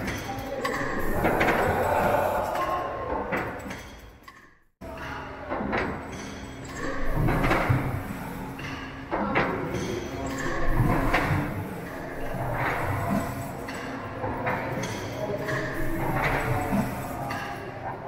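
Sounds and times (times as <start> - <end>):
steam engine machinery clattering: 0.0 - 2.5, 5.5 - 17.9.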